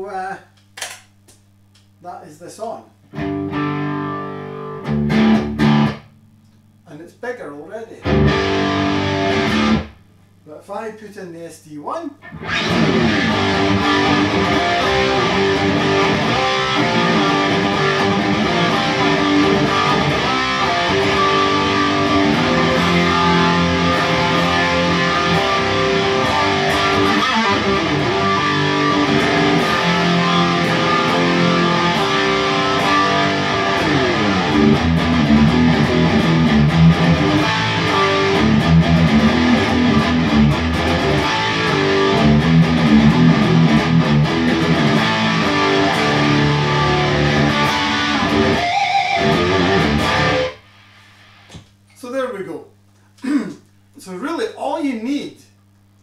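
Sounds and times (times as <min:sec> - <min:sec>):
overdriven electric guitar riff: 0:03.1 - 0:06.2, 0:08.0 - 0:10.1, 0:12.2 - 0:51.6.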